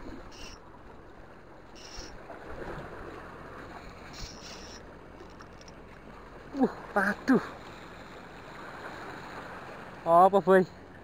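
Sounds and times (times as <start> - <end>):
sea waves washing: 0.0 - 11.0
brief high-pitched rasps: 0.3 - 0.6, 1.8 - 2.1, 4.2 - 4.8.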